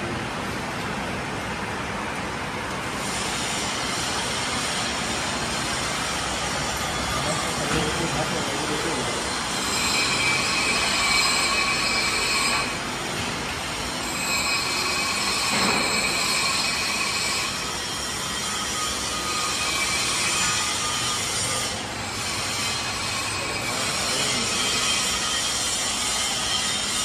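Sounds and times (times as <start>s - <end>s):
workshop din: 0.0s - 27.0s
machinery squealing: 6.7s - 12.8s, 13.9s - 27.0s.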